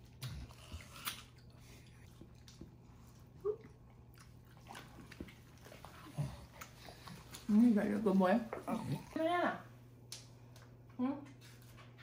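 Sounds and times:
wet chewing sounds: 0.0 - 9.4.

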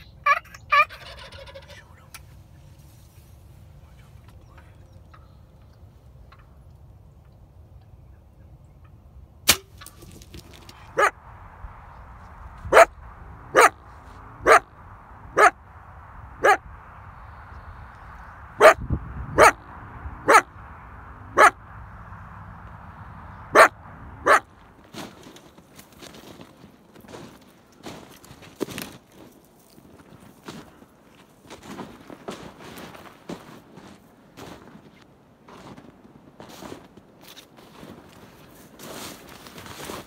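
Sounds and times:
coyote barking: 10.8 - 11.2, 12.6 - 15.6, 16.4 - 16.7, 18.6 - 20.6, 21.2 - 21.6, 23.4 - 24.6.

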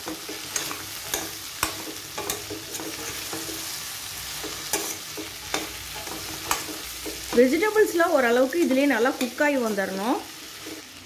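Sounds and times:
vegetables sizzling in oil: 0.0 - 11.0
metal ladle scraping pot: 0.1 - 3.8, 4.4 - 7.4, 10.4 - 11.0.

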